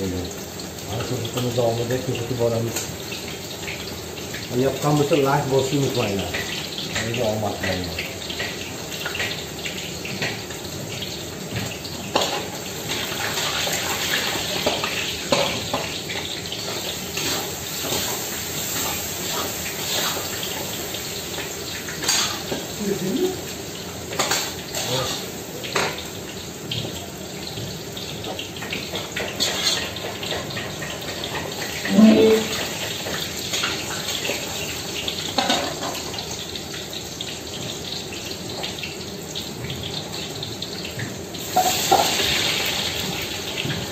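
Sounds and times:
meat sizzling in pans: 0:00.0 - 0:43.9
metal utensil clacking on pans: 0:11.6 - 0:18.1, 0:21.9 - 0:22.7, 0:24.1 - 0:26.1, 0:28.2 - 0:34.5, 0:35.3 - 0:36.2.

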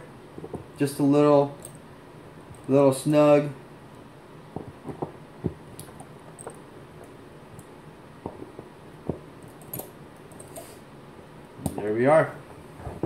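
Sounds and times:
metal keys clicking and tapping: 0:09.4 - 0:10.6.

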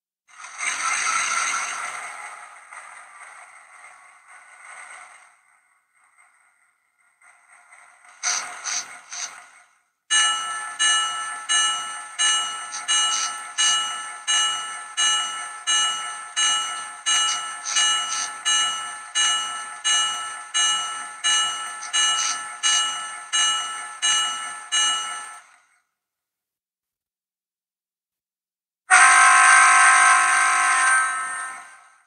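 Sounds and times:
locomotive bell ringing: 0:10.1 - 0:25.6, 0:28.9 - 0:31.9.

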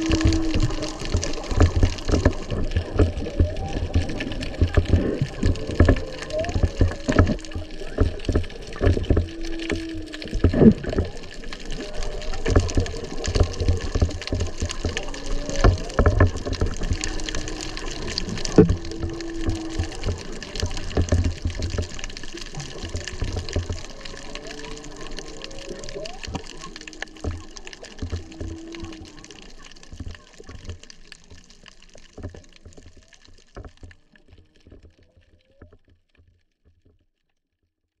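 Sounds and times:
whale song moans and whoops: 0:00.0 - 0:29.4
crackling water noise: 0:00.0 - 0:38.0.

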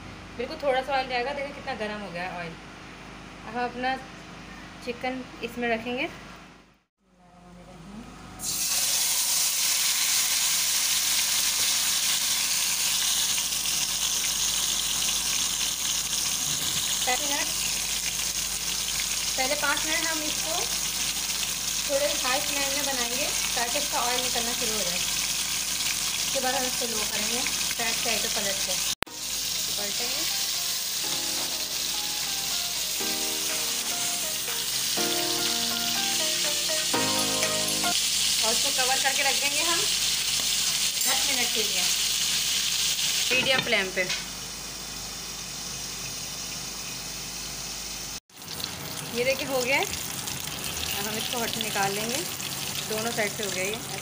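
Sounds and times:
chicken sizzling in hot oil: 0:08.4 - 0:54.0
background music chords: 0:30.6 - 0:38.0.

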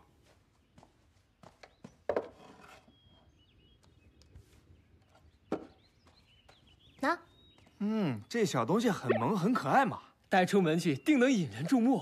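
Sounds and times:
wooden knocks and scraping: 0:02.0 - 0:02.9
faint high chirps: 0:08.8 - 0:10.1.

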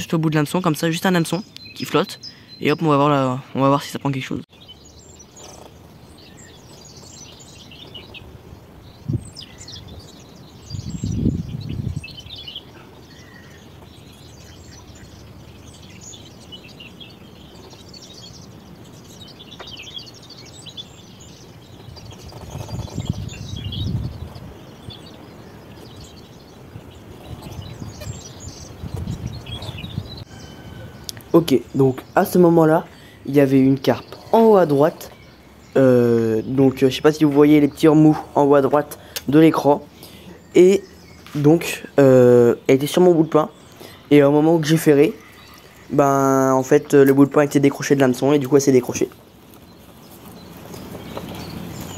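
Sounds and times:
small birds chirping: 0:00.0 - 0:51.9
muffled microphone rumbles: 0:08.0 - 0:12.3, 0:21.7 - 0:24.9, 0:26.8 - 0:30.3.

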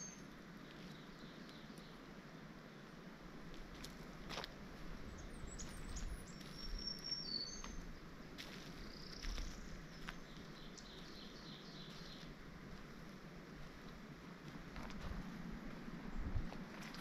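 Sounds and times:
small birds chirping: 0:00.0 - 0:02.8, 0:05.0 - 0:12.9
faint outdoor hiss: 0:00.0 - 0:17.0
footsteps on leaf litter: 0:08.4 - 0:11.2, 0:11.8 - 0:13.2.

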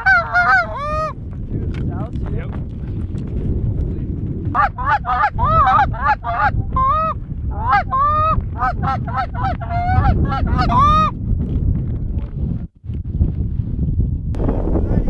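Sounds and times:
geese honking: 0:00.0 - 0:01.1, 0:04.6 - 0:11.1
wind rumble on microphone: 0:00.0 - 0:15.0.

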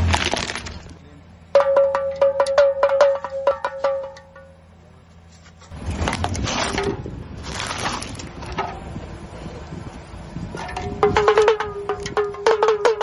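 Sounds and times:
tyre grinding over toy: 0:00.0 - 0:00.9, 0:05.7 - 0:08.5
pellet drum clicking: 0:01.6 - 0:04.5, 0:10.7 - 0:13.0.

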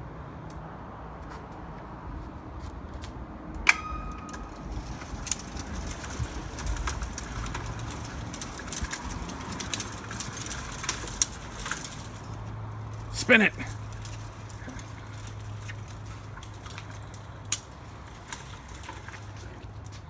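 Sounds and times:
metallic clicks and clanks: 0:03.5 - 0:13.1.

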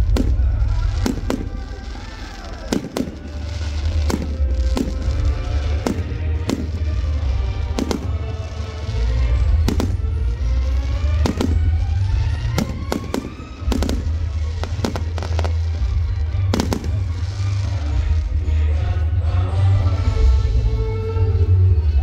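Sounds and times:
fireworks bangs: 0:00.0 - 0:18.5.

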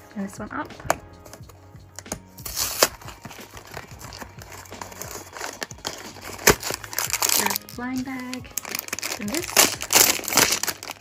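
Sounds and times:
paperboard box tearing: 0:02.4 - 0:07.6, 0:08.6 - 0:11.0.

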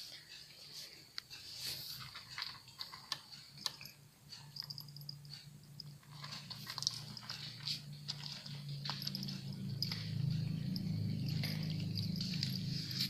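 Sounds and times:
cat crunching dry kibble: 0:02.0 - 0:03.8, 0:06.0 - 0:13.0
steady low hum: 0:03.4 - 0:13.0.

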